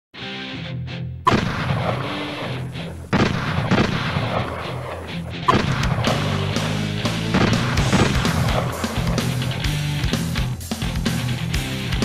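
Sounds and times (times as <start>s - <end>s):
music: 0.2s - 12.0s
loud gunshots: 1.3s - 10.1s.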